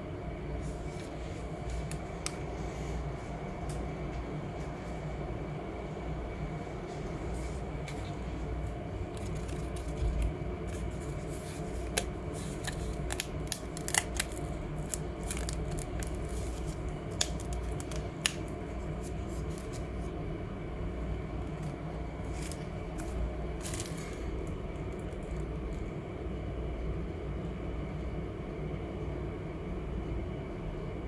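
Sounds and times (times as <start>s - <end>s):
steady low hum: 0.0s - 31.0s
dry leaf crackling: 9.0s - 20.1s, 21.4s - 25.9s.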